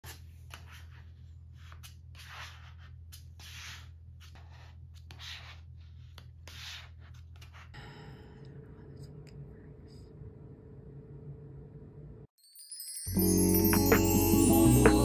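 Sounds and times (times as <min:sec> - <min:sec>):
squeegee card scraping vinyl: 0:00.0 - 0:07.8.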